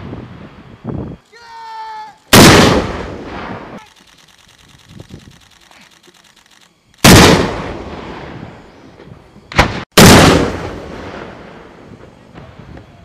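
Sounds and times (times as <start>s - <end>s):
recoilless rifle blasts with echo: 2.3s - 3.6s, 7.0s - 8.3s, 9.6s - 11.2s.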